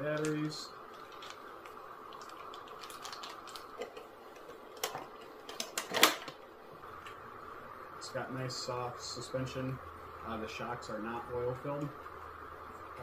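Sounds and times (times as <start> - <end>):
faint room hum: 0.0 - 13.0
hands handling cardboard packaging: 0.1 - 6.3.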